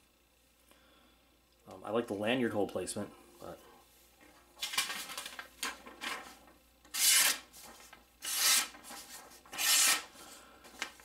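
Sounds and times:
knife slicing paper: 6.9s - 10.1s.

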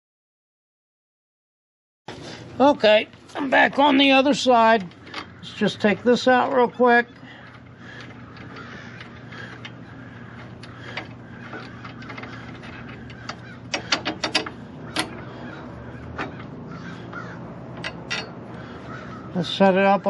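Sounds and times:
steady low hum: 2.1s - 20.0s
wrench clicking on metal bolt: 10.6s - 15.2s, 17.8s - 18.4s.

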